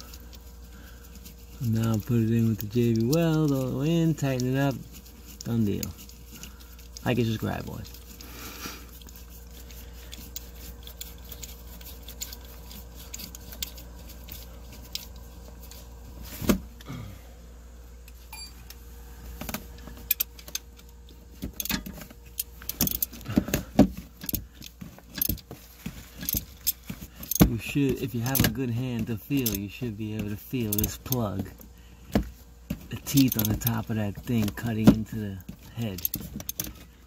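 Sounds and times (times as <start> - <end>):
metal tools clinking: 29.2 - 29.7, 33.1 - 33.8.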